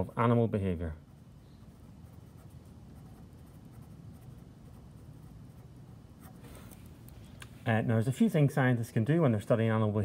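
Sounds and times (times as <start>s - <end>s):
low background rumble: 0.0s - 9.2s
marker pen scratching on paper: 0.2s - 7.1s.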